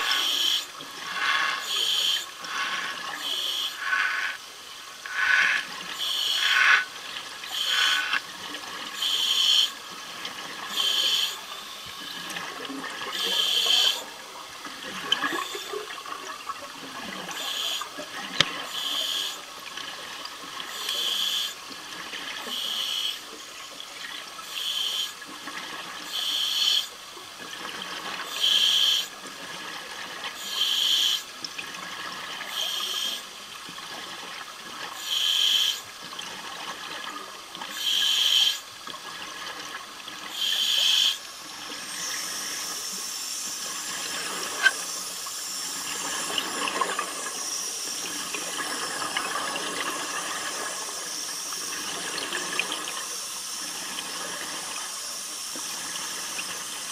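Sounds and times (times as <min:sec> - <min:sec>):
rushing air and water hiss: 0:00.0 - 0:08.2, 0:35.0 - 0:35.9, 0:40.2 - 0:56.9
underwater exhaled bubbles: 0:00.0 - 0:21.0, 0:38.6 - 0:56.9.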